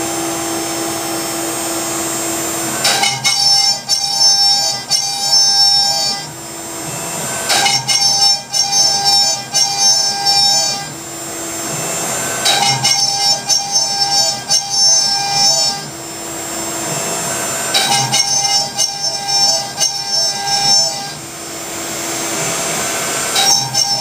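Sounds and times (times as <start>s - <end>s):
dust collector running: 0.0s - 3.3s, 10.9s - 12.9s, 15.8s - 19.2s, 21.2s - 24.0s
router spindle whining cut: 0.0s - 24.0s.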